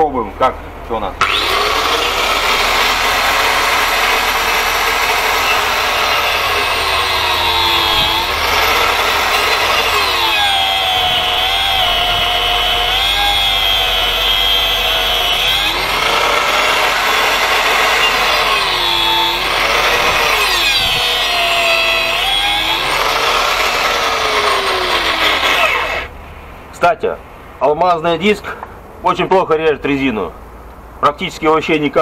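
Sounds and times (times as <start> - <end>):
angle grinder whining: 1.2 - 26.1.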